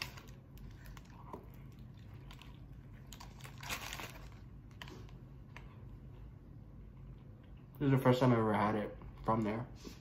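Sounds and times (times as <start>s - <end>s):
paper crinkling: 0.0s - 5.2s
person chewing a sandwich: 0.0s - 7.8s.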